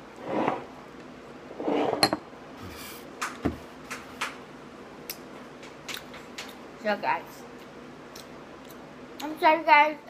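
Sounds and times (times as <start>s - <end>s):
glass bowl clinking: 1.9s - 2.2s.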